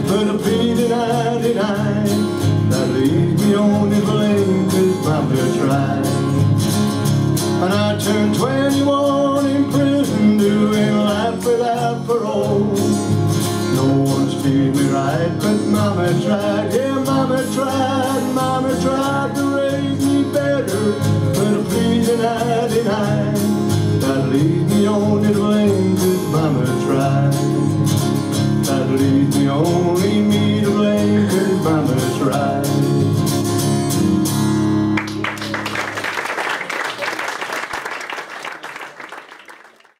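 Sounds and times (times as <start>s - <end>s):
country band playing: 0.0s - 39.4s
audience applause: 35.0s - 39.9s.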